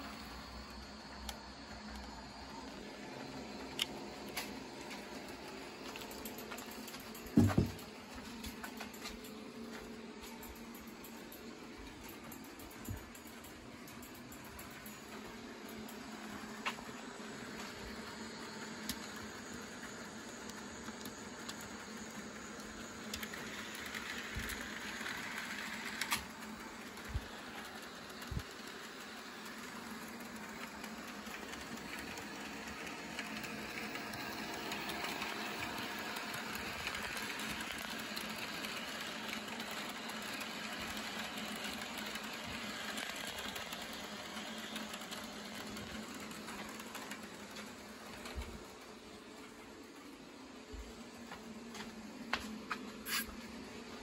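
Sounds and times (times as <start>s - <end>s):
model train motor whirring: 0.0s - 54.0s.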